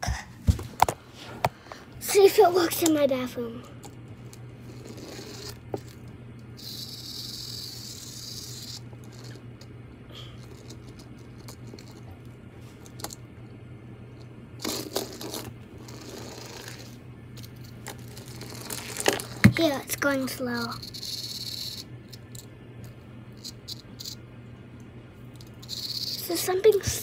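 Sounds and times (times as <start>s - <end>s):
faint steady hum: 0.0s - 27.0s
toy handling scrapes and clicks: 3.8s - 9.7s, 10.4s - 12.1s, 14.6s - 24.2s, 25.4s - 27.0s.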